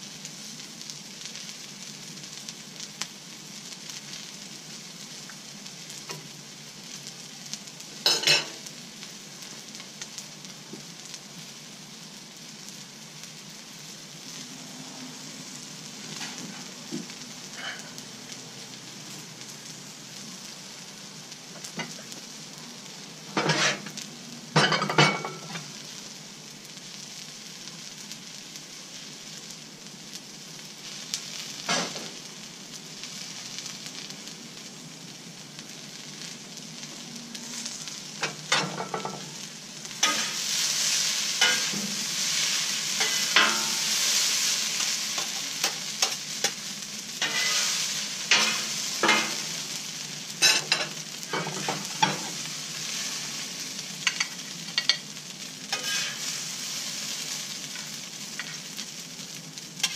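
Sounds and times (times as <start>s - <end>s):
rice sizzling on a griddle: 0.0s - 59.9s
metal spatulas scraping griddle: 23.3s - 23.9s, 40.0s - 40.6s, 41.4s - 44.0s, 47.2s - 49.5s, 50.4s - 52.4s, 55.7s - 56.4s.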